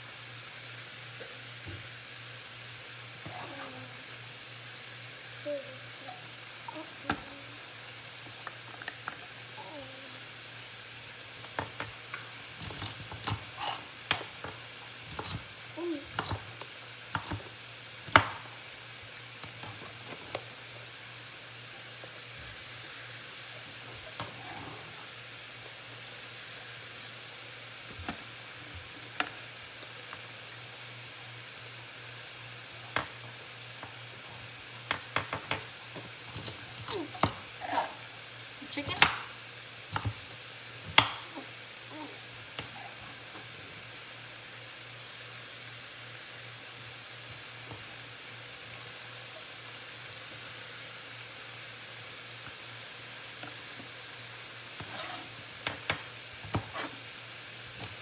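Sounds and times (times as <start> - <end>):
chicken sizzling in a frying pan: 0.0 - 58.0
spatula working in pan: 11.4 - 18.7, 39.8 - 43.6, 53.3 - 58.0
knife chopping on cutting board: 18.1 - 18.4.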